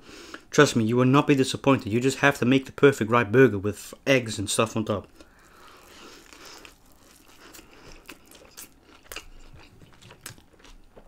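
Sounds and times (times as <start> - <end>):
quiet chewing: 5.0 - 11.0
biting into a soft burger: 5.2 - 11.0.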